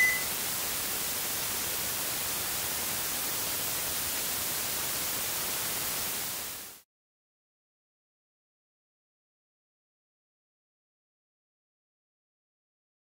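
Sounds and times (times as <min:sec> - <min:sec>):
white noise static hiss: 0:00.0 - 0:06.8.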